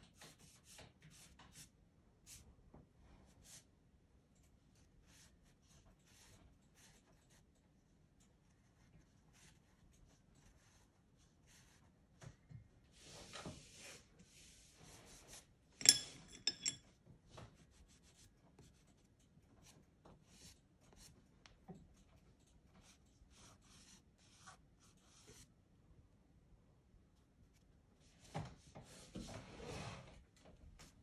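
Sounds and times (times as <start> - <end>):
pastel stick scratching paper: 0.0 - 2.4, 4.8 - 7.5, 8.5 - 11.9, 17.5 - 21.2, 22.0 - 25.5.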